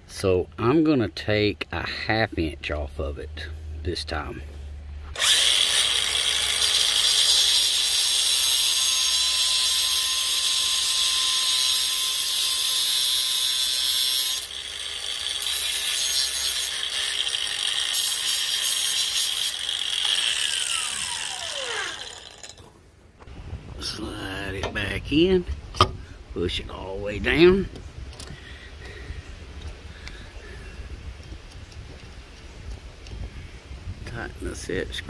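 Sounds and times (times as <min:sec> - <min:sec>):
angle grinder cutting steel: 0:05.1 - 0:22.7.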